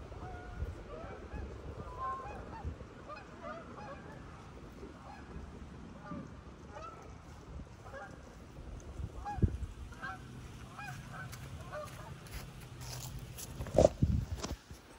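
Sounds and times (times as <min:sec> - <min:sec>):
geese honking: 0:00.2 - 0:04.4, 0:05.0 - 0:08.4, 0:09.1 - 0:13.0.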